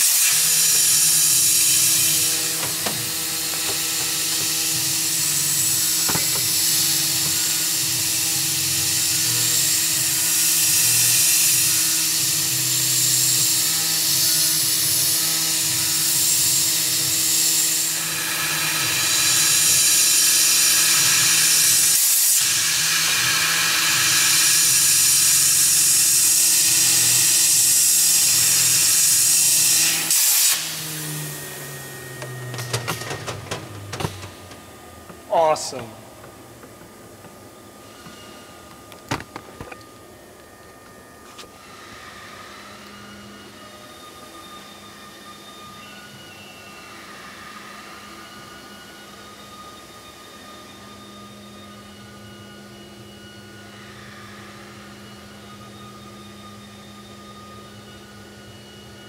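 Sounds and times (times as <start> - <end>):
steady hum: 0.0 - 10.3, 27.6 - 59.0
milling spindle cutting metal: 0.0 - 33.2.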